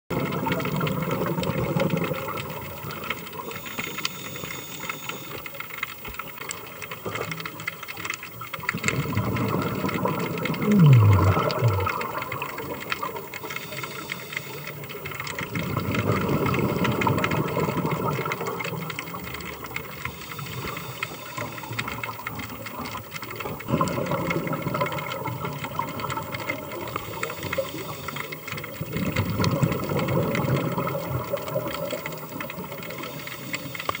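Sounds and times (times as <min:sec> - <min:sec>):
faint crackling clicks: 0:00.1 - 0:34.0
scuba exhale bubbles rushing: 0:08.6 - 0:34.0.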